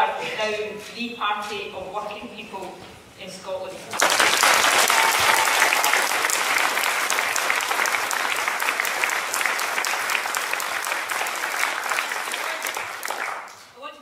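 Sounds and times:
audience applauding: 4.0 - 13.6.

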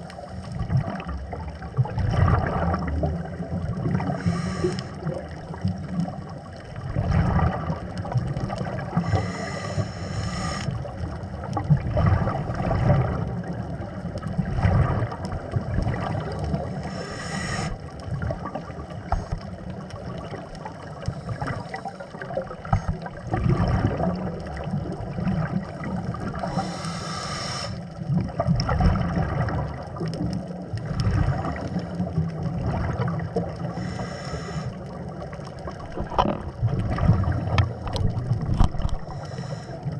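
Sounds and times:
underwater rumble of moving water: 0.0 - 39.9
short hissing burst: 4.2 - 5.0, 9.0 - 10.7, 16.8 - 17.8, 26.5 - 27.8, 33.8 - 34.7.

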